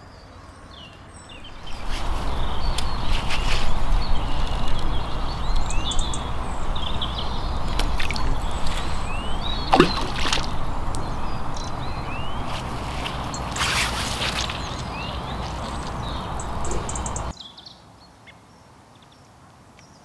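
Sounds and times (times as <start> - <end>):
small birds chirping: 0.0 - 20.0
low rumble: 1.3 - 17.3
bait plopping into water: 9.6 - 11.1.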